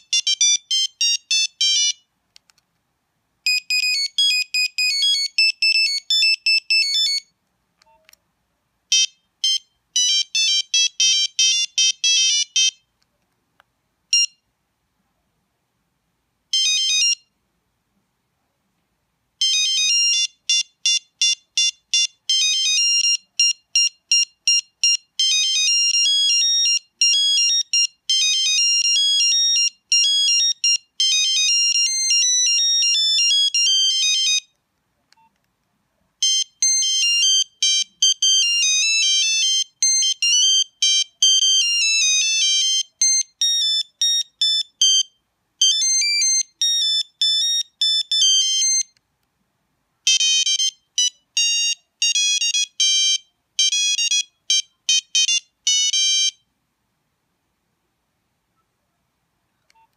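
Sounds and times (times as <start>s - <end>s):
mobile phone ringtone beeping: 0.0s - 2.0s, 3.5s - 7.3s, 8.9s - 12.8s, 14.1s - 14.4s, 16.6s - 17.3s, 19.4s - 34.5s, 36.2s - 49.0s, 50.1s - 56.4s.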